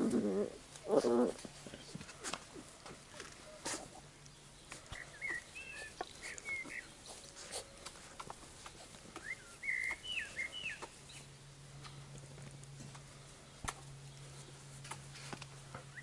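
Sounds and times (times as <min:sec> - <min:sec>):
puppies squeaking and yipping: 0:05.0 - 0:11.0.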